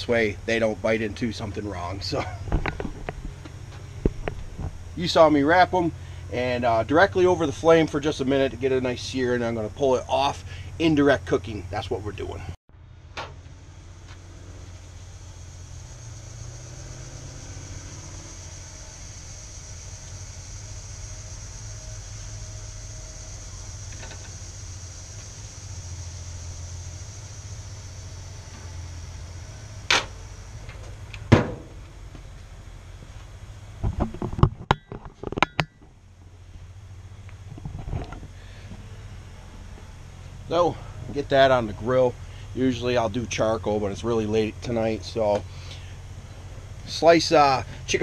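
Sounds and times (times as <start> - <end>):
gas grill burners rumbling: 0.0 - 34.4, 35.9 - 48.0
low steady hum: 0.0 - 48.0
gas hiss: 13.8 - 31.7.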